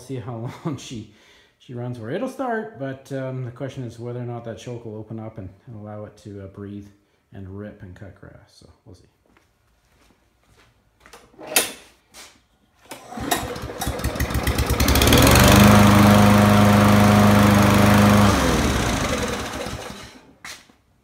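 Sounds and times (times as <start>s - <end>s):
lawn mower engine running: 12.9s - 20.3s.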